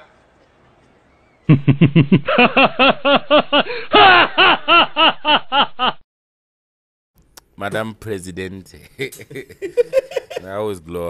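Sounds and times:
loud rhythmic laughter: 0:01.5 - 0:06.0, 0:09.0 - 0:10.4.

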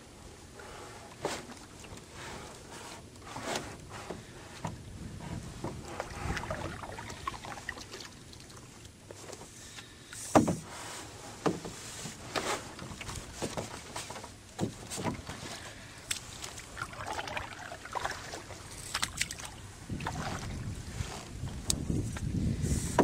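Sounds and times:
paddle strokes splashing: 0:05.4 - 0:21.8.

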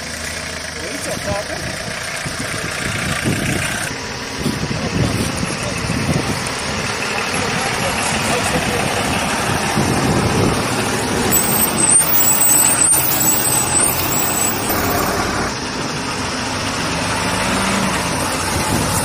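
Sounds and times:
heavy trucks engine and road noise: 0:00.0 - 0:19.0
thin high squeal: 0:11.3 - 0:15.3.

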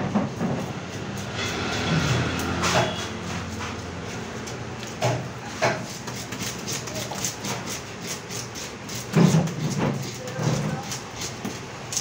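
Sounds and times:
steady background noise: 0:00.0 - 0:12.0
knife cutting fish: 0:04.4 - 0:12.0.

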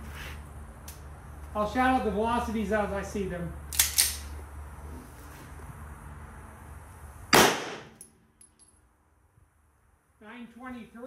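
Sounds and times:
pistol shots: 0:07.3 - 0:08.0.

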